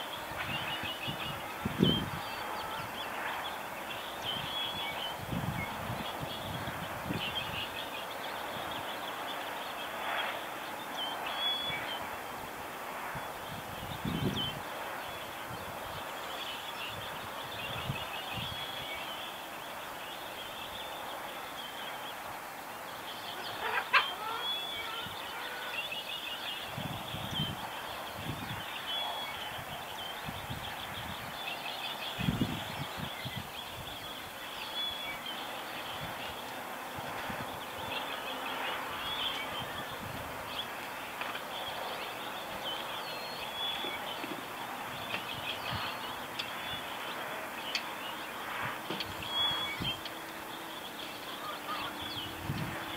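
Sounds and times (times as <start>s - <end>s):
birds chirping and trilling: 13.2s - 52.9s.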